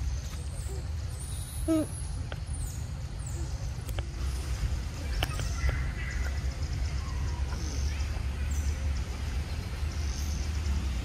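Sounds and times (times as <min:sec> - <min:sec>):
low forest rumble: 0:00.0 - 0:11.0.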